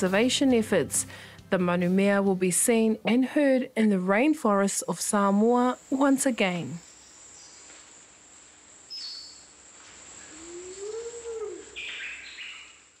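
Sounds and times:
high insect drone: 5.6s - 13.0s
bird chirps: 8.9s - 9.5s, 11.6s - 13.0s.

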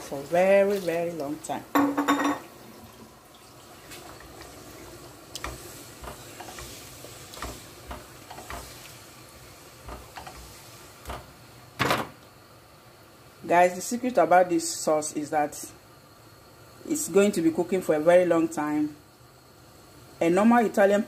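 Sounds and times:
spoon stirring sauce in a pot: 3.9s - 11.3s.

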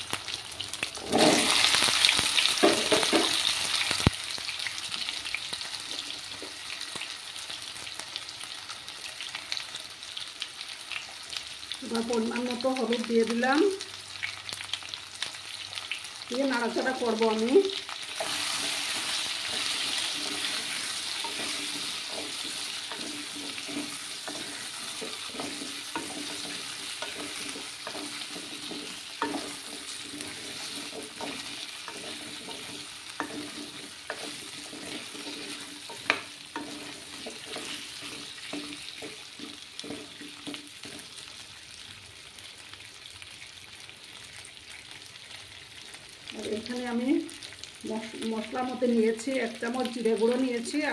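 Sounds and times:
food sizzling in oil: 0.0s - 50.9s
wooden spatula scraping a pan: 1.0s - 1.8s, 18.1s - 41.3s.

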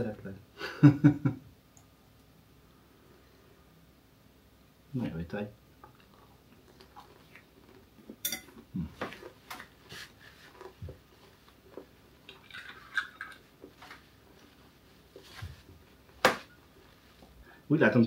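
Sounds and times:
spoons and bottle clinking on dishes: 8.2s - 8.6s.

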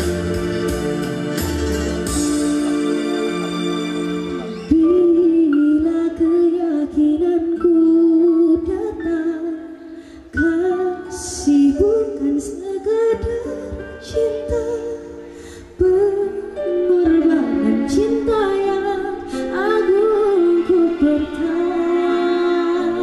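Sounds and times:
woman singing through pa system: 15.8s - 23.0s.

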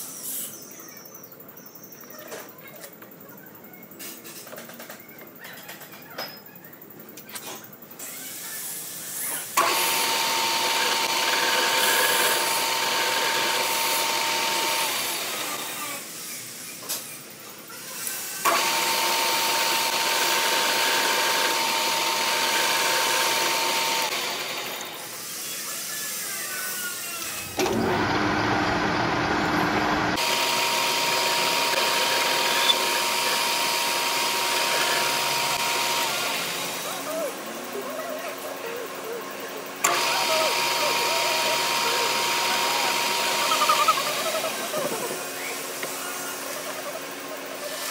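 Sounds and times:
metal lathe whine: 9.6s - 15.8s, 18.4s - 25.2s, 27.3s - 36.9s, 39.8s - 46.5s.

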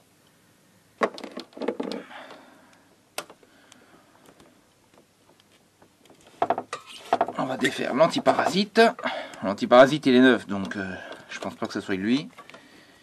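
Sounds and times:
clicks and rattles of parts handled: 1.0s - 2.4s, 10.5s - 12.7s.

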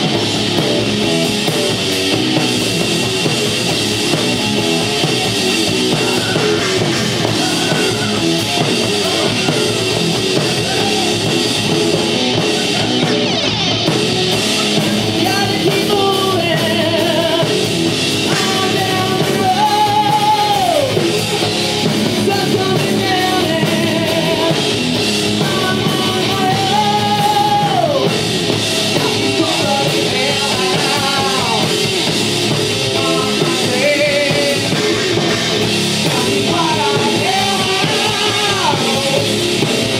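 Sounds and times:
drum kit: 0.0s - 39.9s
electric guitars: 0.0s - 39.9s
man singing: 14.6s - 21.1s, 22.1s - 24.8s, 25.4s - 28.2s, 28.9s - 32.0s, 32.9s - 39.7s.

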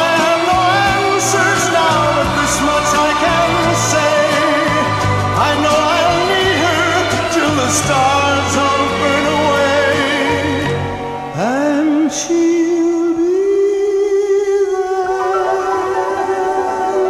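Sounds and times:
instrumental accompaniment: 0.0s - 13.0s
person singing: 0.0s - 17.0s.

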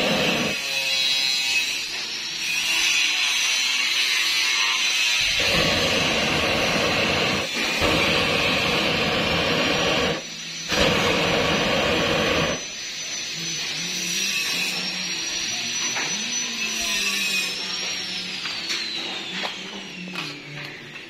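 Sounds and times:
gas burner rushing: 0.0s - 0.7s, 4.8s - 13.7s.

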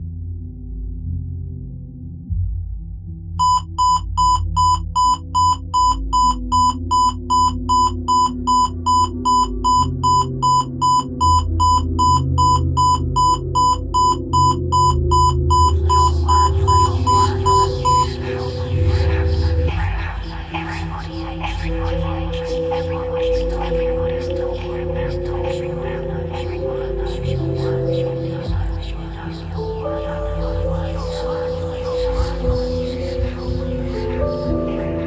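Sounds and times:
low ambient music drone: 0.0s - 35.0s
digital watch alarm beeping: 3.4s - 18.3s.

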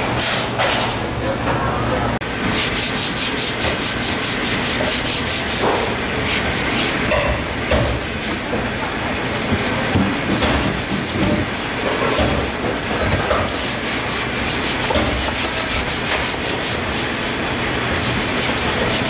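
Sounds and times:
running hose water: 2.2s - 19.0s
brush scrubbing wet wood: 2.4s - 7.2s, 10.6s - 19.0s.

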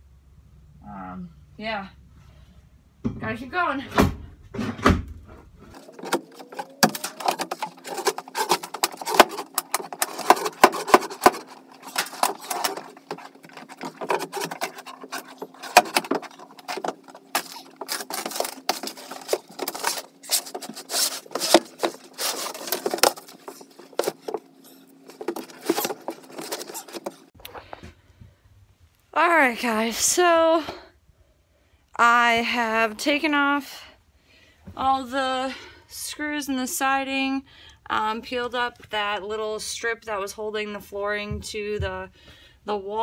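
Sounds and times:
faint steady hum: 0.0s - 43.0s
wooden boards knocking and scraping: 5.7s - 27.3s.

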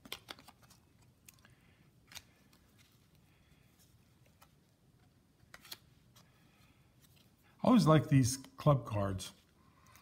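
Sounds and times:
cards rustling: 0.0s - 7.4s.

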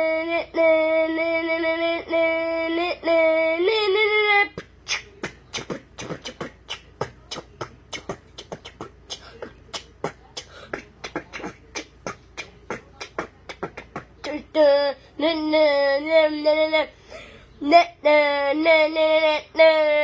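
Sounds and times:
beatboxing mouth clicks: 4.5s - 14.5s.

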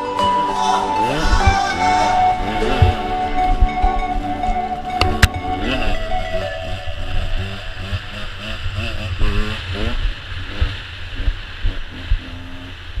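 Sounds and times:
low thumps: 0.4s - 9.4s
motorcycle engine revving: 0.4s - 13.0s.

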